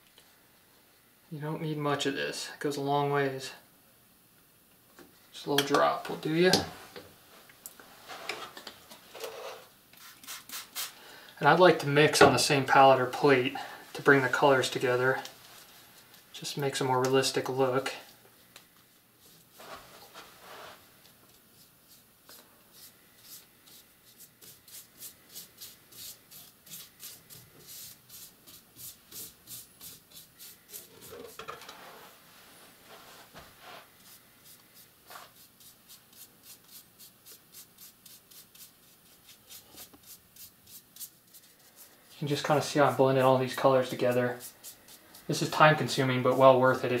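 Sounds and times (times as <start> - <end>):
paintbrush brushing on antler: 10.0 - 11.0, 18.9 - 47.0
soft handling sounds: 13.2 - 22.5, 30.5 - 35.5.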